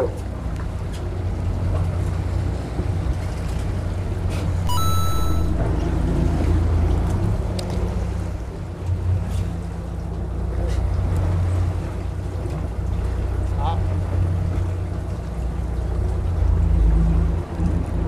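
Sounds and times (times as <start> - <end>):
short high electronic tone: 4.7 - 5.7.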